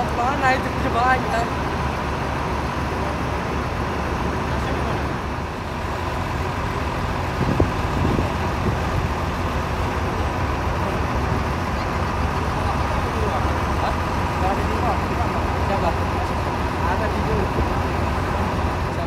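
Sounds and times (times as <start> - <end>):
bus and traffic engine rumble: 0.0 - 19.0.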